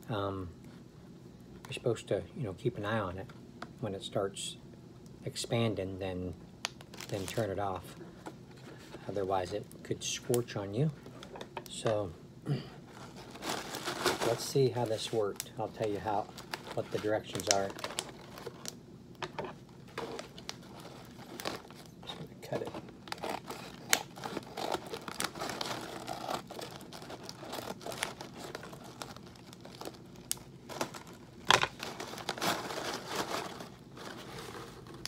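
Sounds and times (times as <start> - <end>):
paper bag crinkling: 6.8 - 8.0, 12.9 - 18.8, 19.6 - 35.0.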